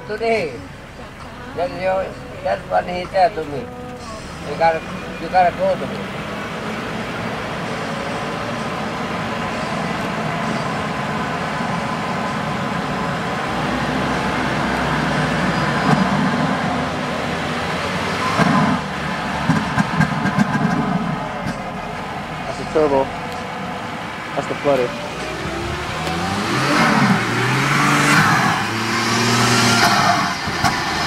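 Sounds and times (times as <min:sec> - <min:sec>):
car engine running: 0:00.0 - 0:31.0.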